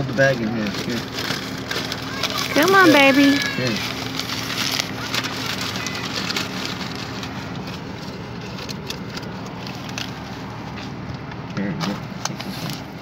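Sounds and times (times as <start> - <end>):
car hum: 0.0 - 13.0
paper bag rustling and crinkling: 0.0 - 13.0.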